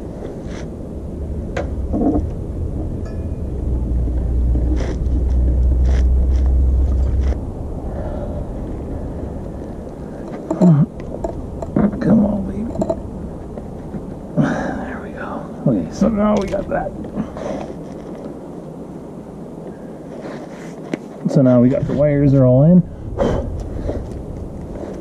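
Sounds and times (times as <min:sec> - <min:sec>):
low rumble: 0:00.0 - 0:17.4, 0:21.7 - 0:25.0
person grunting: 0:10.6 - 0:10.9.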